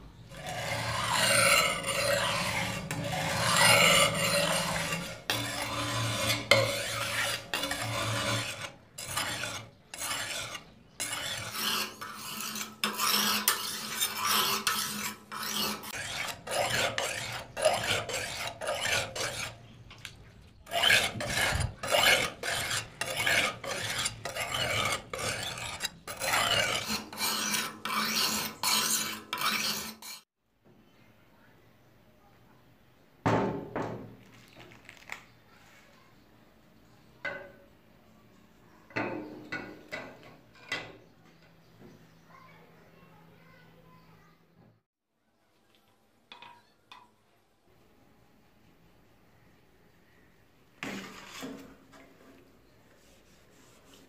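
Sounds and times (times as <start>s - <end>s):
blade scraping on sharpening stone: 0.3s - 19.6s, 20.7s - 30.3s.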